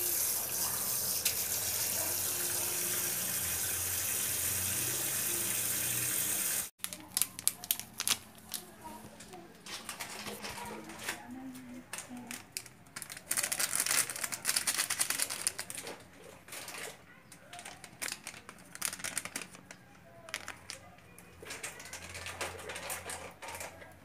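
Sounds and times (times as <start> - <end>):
plastic packet crinkling: 6.8 - 11.3, 11.9 - 16.9, 17.5 - 23.8.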